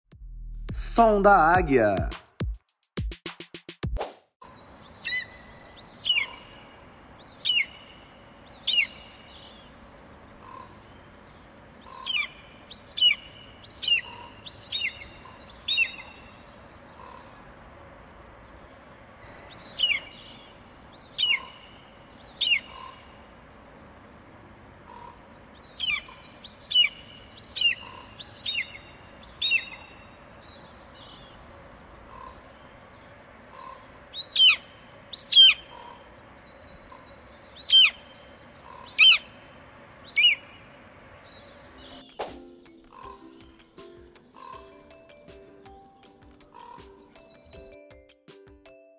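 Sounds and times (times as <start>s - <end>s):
eagle calling: 5.0s - 7.8s, 8.5s - 9.1s, 11.8s - 17.4s, 19.4s - 20.4s, 21.0s - 23.1s, 24.8s - 30.1s, 33.5s - 39.4s, 40.0s - 40.6s, 42.8s - 43.4s.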